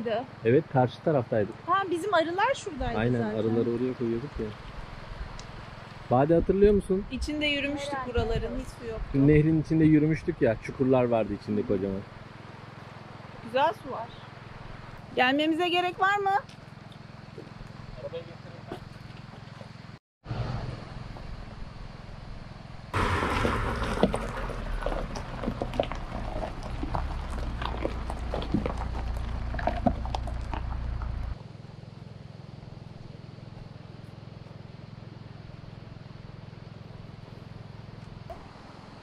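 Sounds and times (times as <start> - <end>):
car engine rumble: 0.0 - 39.0
tyres crunching on gravel: 22.9 - 31.4.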